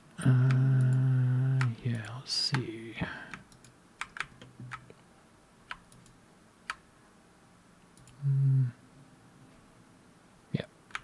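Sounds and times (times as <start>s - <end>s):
man humming: 0.0s - 3.2s, 8.1s - 8.8s
computer mouse clicks: 3.3s - 5.0s, 5.7s - 6.8s, 8.0s - 8.2s.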